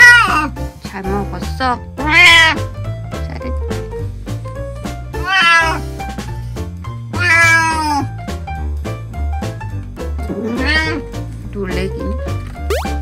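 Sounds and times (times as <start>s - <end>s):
cat meowing: 0.0s - 0.5s, 2.0s - 2.6s, 5.2s - 5.9s, 7.2s - 8.1s, 10.3s - 11.1s.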